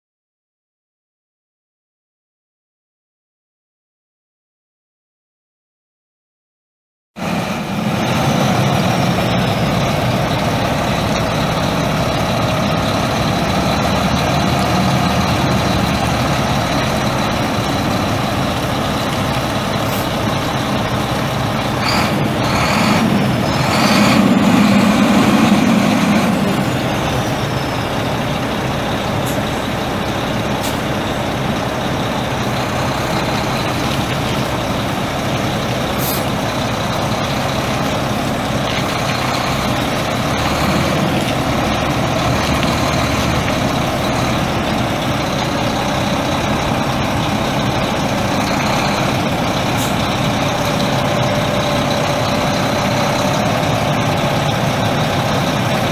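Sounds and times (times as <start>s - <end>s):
diesel truck engine idling: 7.2s - 55.9s
short air hisses: 36.0s - 36.4s.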